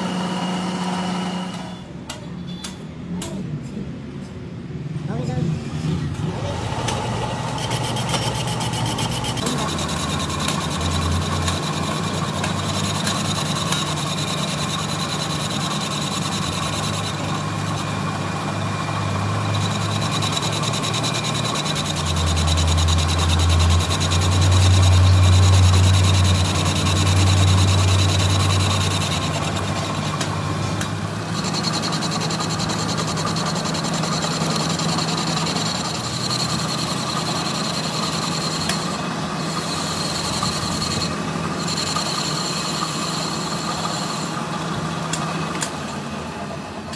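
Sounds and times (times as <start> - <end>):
metal lathe motor hum and whine: 0.0 - 1.8, 6.2 - 46.9
cutting tool scraping metal: 6.8 - 18.2, 19.3 - 44.4.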